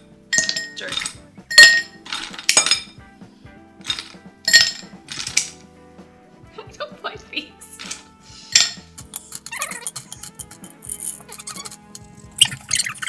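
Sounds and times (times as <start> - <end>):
ice cubes clinking in glass: 0.4 - 2.9, 3.8 - 5.5.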